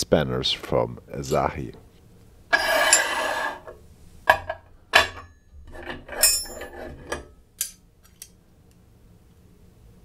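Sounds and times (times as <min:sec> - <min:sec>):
metal scraping: 0:02.5 - 0:03.8, 0:05.0 - 0:07.3
metal tools clinking on wood: 0:04.4 - 0:08.3.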